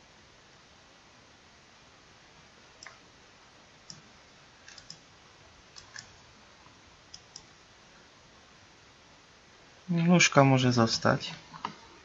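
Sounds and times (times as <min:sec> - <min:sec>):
low steady hiss: 0:00.0 - 0:12.0
computer mouse buttons clicking: 0:03.8 - 0:05.0, 0:05.8 - 0:06.1, 0:07.1 - 0:07.5.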